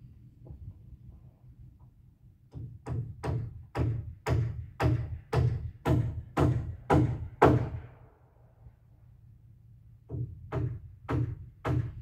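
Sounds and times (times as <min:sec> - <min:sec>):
low steady rumble: 0:00.0 - 0:12.0
hammer driving nails into wood: 0:02.5 - 0:07.9, 0:10.1 - 0:12.0.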